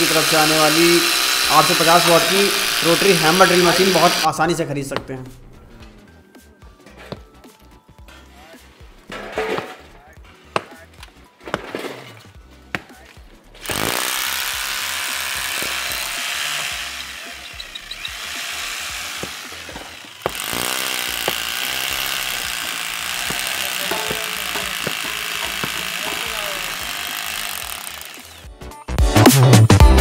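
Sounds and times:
hammer drill boring into wall: 0.0s - 4.3s, 13.6s - 28.6s.

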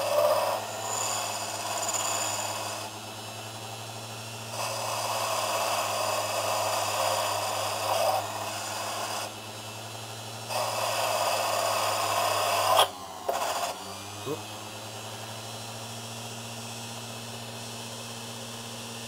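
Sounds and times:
rasping grinding: 0.0s - 3.0s, 4.4s - 9.4s, 10.5s - 13.8s
lathe motor hum: 0.0s - 19.0s.

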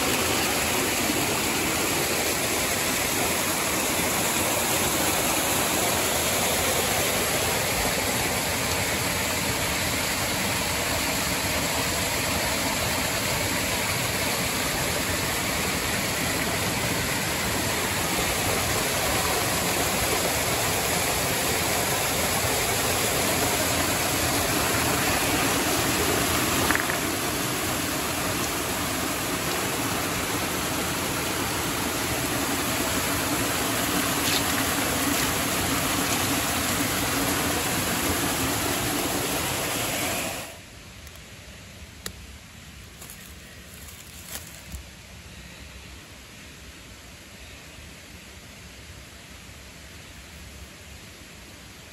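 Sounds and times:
creek water splashing over rocks: 0.0s - 40.6s.

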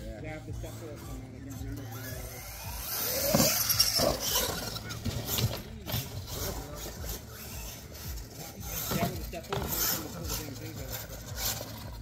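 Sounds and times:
toy truck motor revving: 0.0s - 12.0s
tyres scrabbling on dirt: 2.4s - 12.0s.

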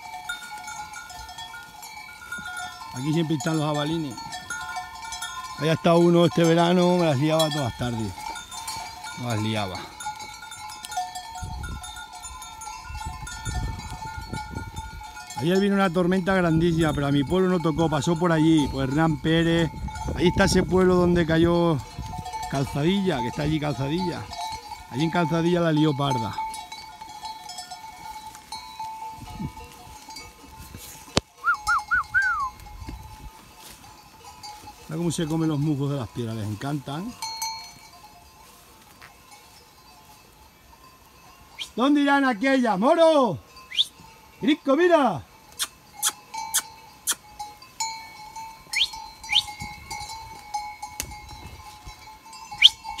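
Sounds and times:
goat bells ringing: 0.0s - 53.0s
whistled notes: 31.4s - 32.6s, 43.7s - 44.0s, 48.8s - 49.5s, 52.6s - 53.0s.

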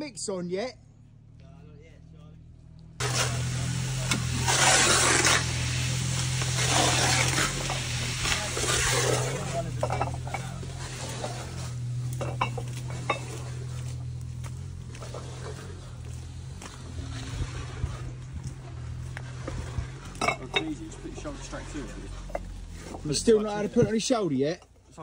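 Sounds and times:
mixer motor hum: 3.0s - 20.2s
paddles scraping and churning mix: 3.0s - 24.3s.

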